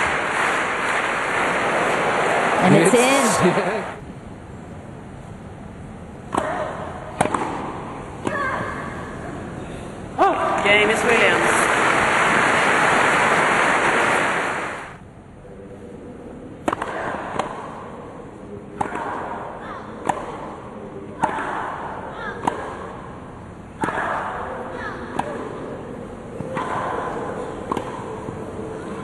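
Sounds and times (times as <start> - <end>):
crowd applause: 0.0 - 4.0, 10.8 - 15.0
racket striking tennis ball: 6.3 - 8.7, 16.6 - 17.9, 18.7 - 23.2, 23.8 - 25.7, 26.4 - 28.2.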